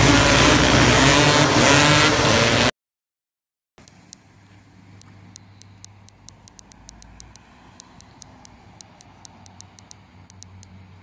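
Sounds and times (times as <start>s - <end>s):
light sharp ticks: 3.8s - 4.3s, 5.0s - 10.8s.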